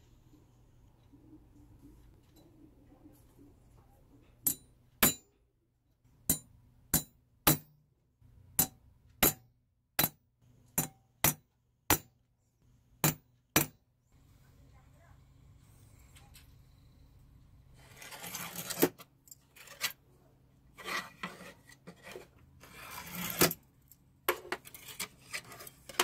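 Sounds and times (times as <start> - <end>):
hammer striking metal punch: 4.4 - 5.3, 6.3 - 7.7, 8.6 - 10.2, 10.8 - 12.1, 13.0 - 13.8.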